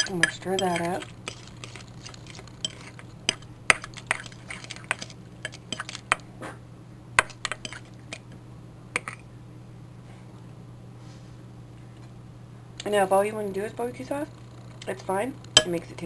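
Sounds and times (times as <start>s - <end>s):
spoon clinking against bowl: 0.0s - 1.8s.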